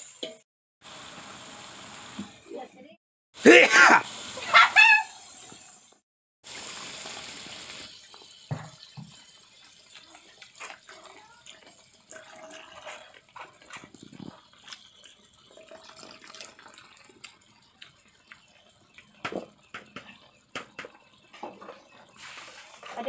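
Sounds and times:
sizzling in a wok: 0.0 - 23.0
liquid pouring and dripping: 6.5 - 22.9
crackles: 9.3 - 23.0.

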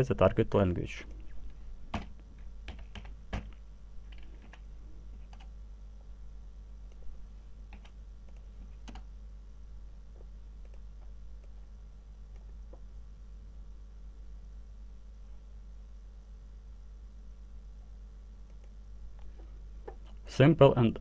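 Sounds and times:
faint low hum: 0.0 - 21.0
keyboard typing: 1.9 - 4.6, 5.2 - 5.5, 7.7 - 9.1.

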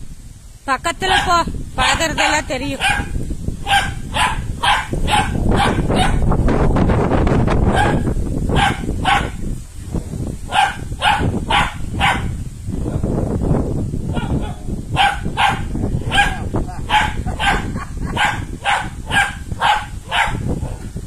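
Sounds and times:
dog barking: 1.1 - 6.3, 7.7 - 9.4, 10.5 - 12.4, 14.1 - 20.9.

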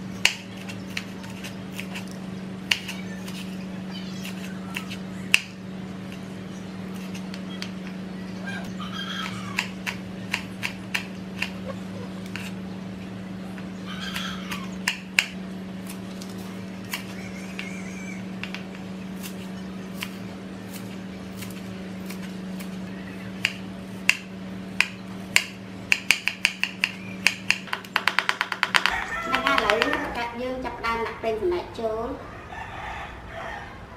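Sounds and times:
steady low hum: 0.0 - 33.9
knife chopping on wooden board: 23.4 - 30.1.

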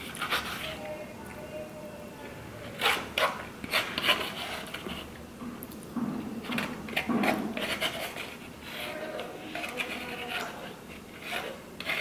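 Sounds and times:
metal spoon scraping bowl: 0.0 - 1.0, 2.6 - 5.2, 6.5 - 12.0.

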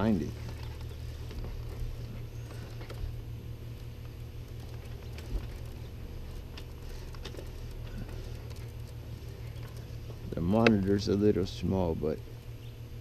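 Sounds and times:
steady low hum: 0.0 - 13.0
cable ticks and scrapes: 3.8 - 11.2.

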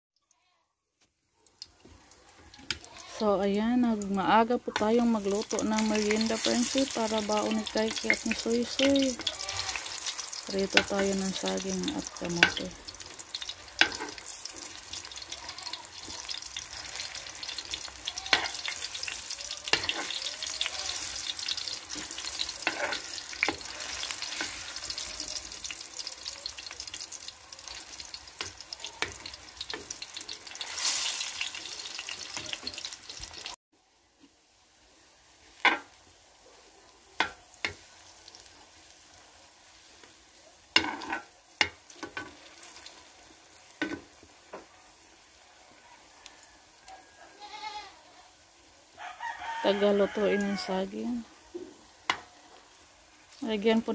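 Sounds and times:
food sizzling in oil: 1.4 - 33.6, 34.2 - 53.9
metal spatula scraping pan: 4.7 - 12.7, 13.4 - 25.5, 40.8 - 41.3.

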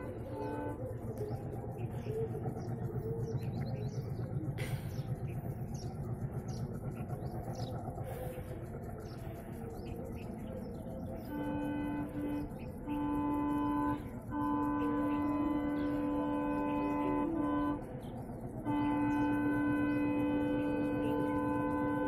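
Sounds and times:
locomotive horn blasts: 0.0 - 2.0, 11.1 - 22.0
low rumble: 0.0 - 21.6
birds chirping: 0.0 - 22.0.

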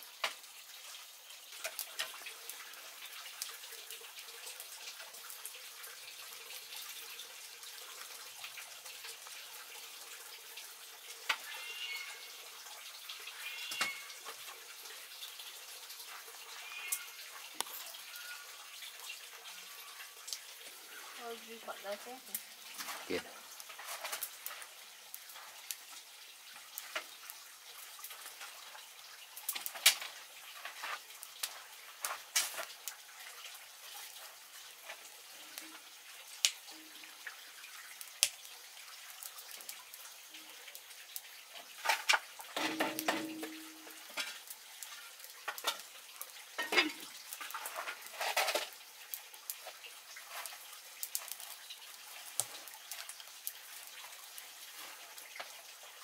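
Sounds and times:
firewood crackling and popping: 0.0 - 56.0
knocks and scrapes: 46.7 - 48.7.

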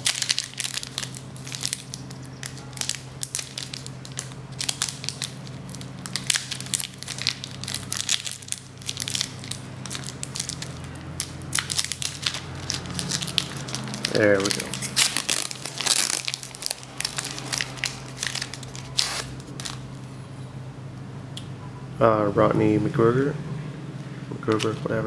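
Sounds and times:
card pack wrapper tearing: 0.0 - 19.8
steady low hum: 0.0 - 25.0.

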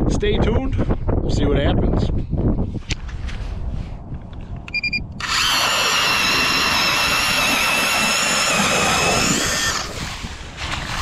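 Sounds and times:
short beep: 4.7 - 5.1
ice auger motor whining: 5.2 - 10.0.

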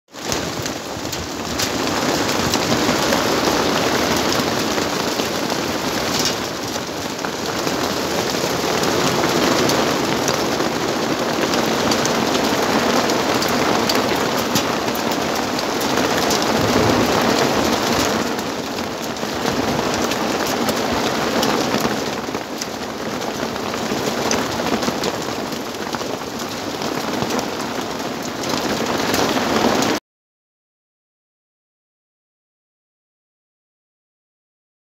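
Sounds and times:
heavy hail striking ground: 0.2 - 30.0.

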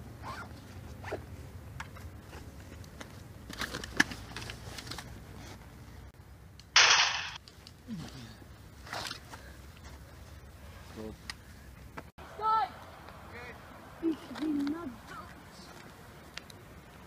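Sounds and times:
gunshot crack: 6.8 - 7.4.

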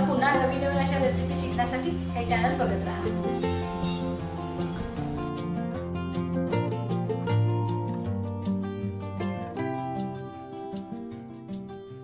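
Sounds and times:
music with plucked strings: 0.0 - 12.0.

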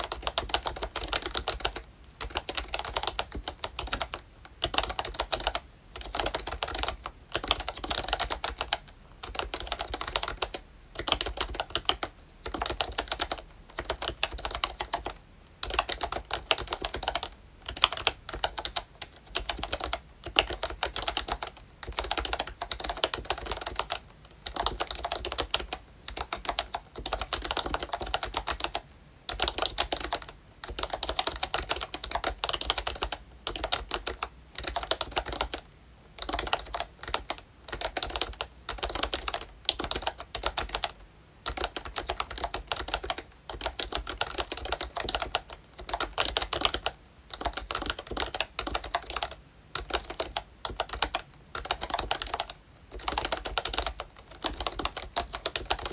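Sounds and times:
typing on keyboard: 0.0 - 55.9.

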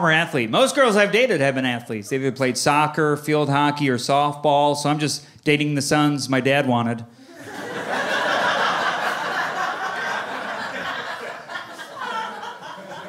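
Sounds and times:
audience laughing: 7.3 - 13.0.

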